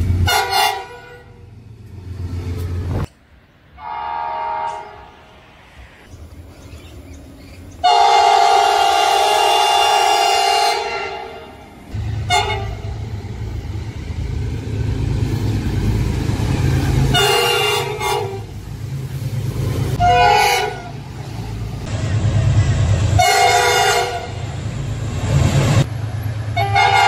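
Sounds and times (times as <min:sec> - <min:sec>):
low rumble of locomotive: 0:00.0 - 0:27.0
locomotive horn blasts: 0:00.2 - 0:01.4, 0:03.8 - 0:05.1, 0:07.8 - 0:11.6, 0:12.2 - 0:13.0, 0:17.1 - 0:18.5, 0:20.0 - 0:21.0, 0:23.2 - 0:24.4, 0:26.6 - 0:27.0.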